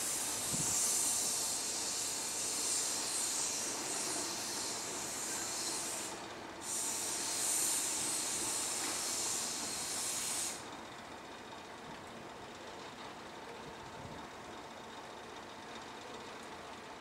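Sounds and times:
locomotive steam hiss: 0:00.0 - 0:10.9.

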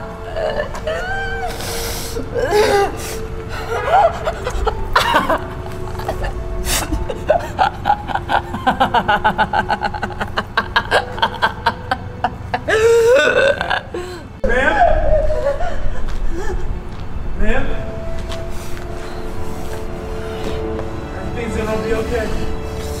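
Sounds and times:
low musical drone: 0:00.0 - 0:23.0
woman laughing: 0:00.3 - 0:01.6, 0:02.4 - 0:14.2, 0:15.1 - 0:16.7.

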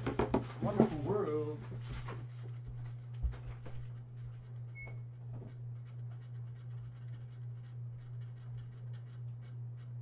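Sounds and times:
low electrical hum: 0:00.0 - 0:10.0
faint knocks and clicks: 0:02.0 - 0:10.0.

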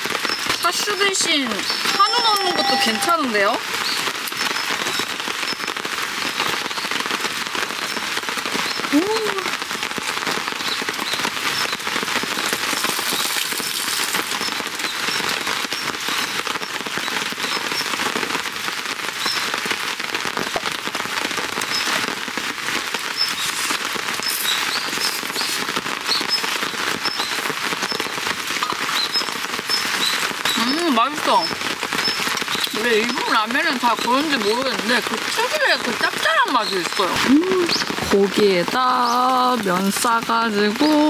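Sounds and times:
rain pattering on a tarp: 0:00.0 - 0:41.0.

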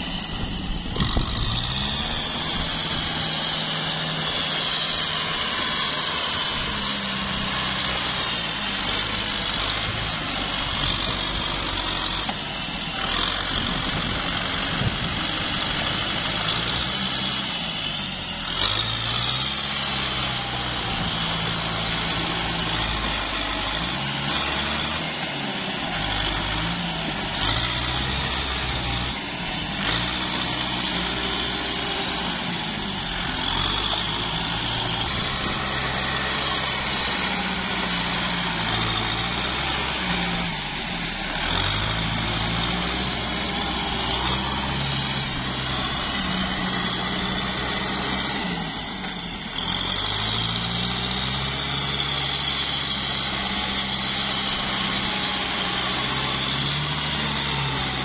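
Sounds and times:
tractor diesel engine under load: 0:00.0 - 0:58.0.

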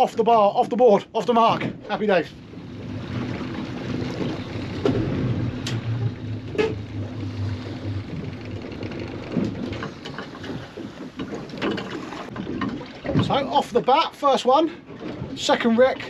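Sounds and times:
water sloshing against boat hull: 0:00.0 - 0:16.0
outboard motor idling: 0:01.9 - 0:13.7.

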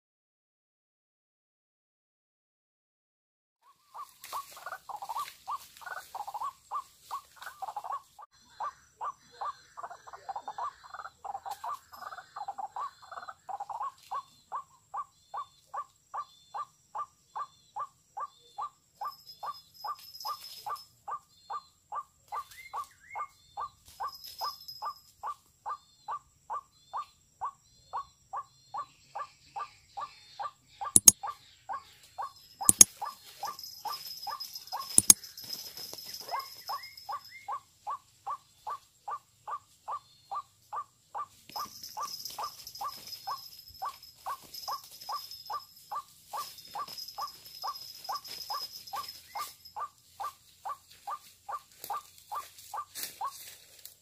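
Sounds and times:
waterhen calls: 0:03.7 - 0:21.6.

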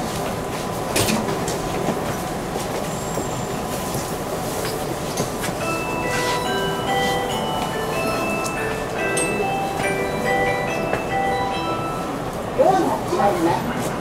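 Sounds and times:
train interior running noise: 0:00.0 - 0:14.0
chiming melody: 0:05.6 - 0:12.4.

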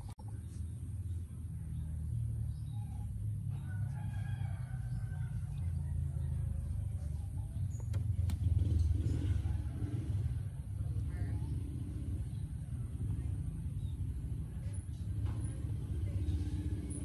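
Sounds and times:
steady low rumble: 0:00.0 - 0:16.9
rooster crowing: 0:03.5 - 0:06.8.

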